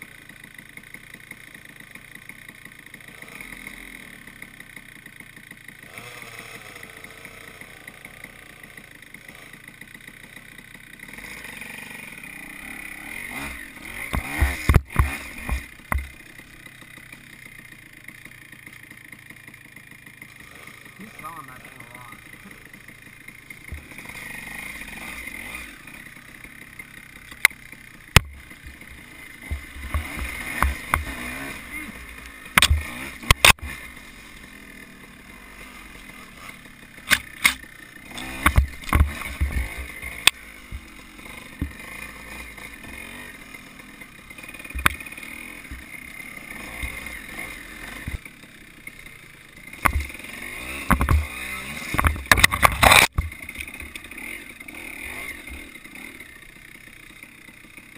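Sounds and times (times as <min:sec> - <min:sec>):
dirt bike engine running: 0:00.0 - 0:57.9
sharp knocks and clatters: 0:14.0 - 0:16.2, 0:38.2 - 0:40.9, 0:49.8 - 0:50.2, 0:50.8 - 0:54.0
heavy thumps of bike bouncing: 0:14.0 - 0:16.4, 0:28.2 - 0:31.4, 0:38.2 - 0:42.0.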